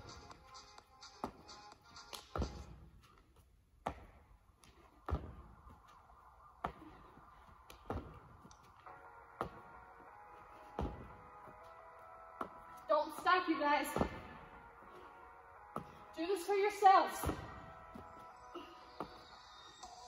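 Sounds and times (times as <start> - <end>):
thuds on rubber gym floor: 3.8 - 4.2, 5.0 - 5.6, 7.7 - 8.3, 10.8 - 11.2, 13.9 - 14.4, 17.1 - 18.0.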